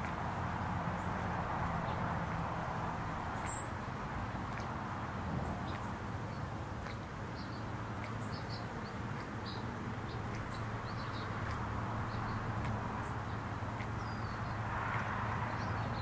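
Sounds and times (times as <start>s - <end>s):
fountain pump bubbling water: 0.0s - 16.0s
bird chirps: 3.4s - 3.8s.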